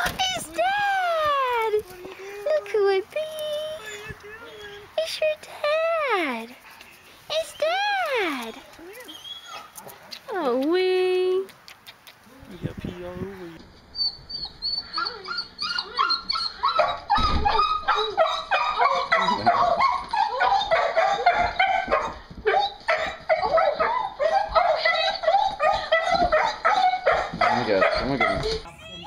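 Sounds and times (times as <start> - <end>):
dog whining and yipping: 3.7 - 5.0, 9.0 - 9.8, 13.9 - 29.0.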